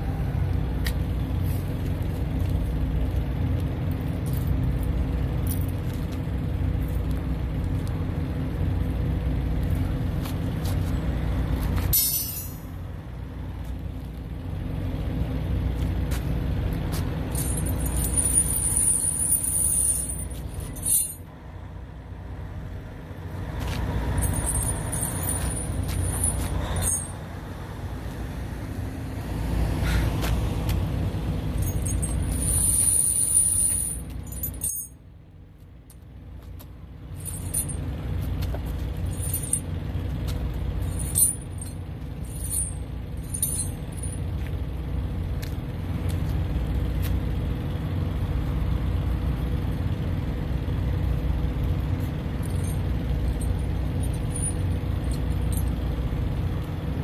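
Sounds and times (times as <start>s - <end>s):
low engine rumble: 0.0s - 57.0s
tire chains clinking and scraping: 0.8s - 21.4s, 23.1s - 28.1s, 30.2s - 57.0s.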